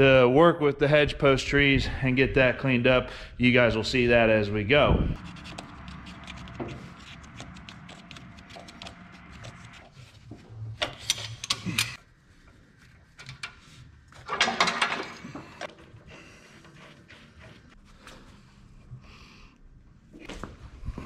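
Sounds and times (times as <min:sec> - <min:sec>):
low steady hum: 0:01.1 - 0:13.2.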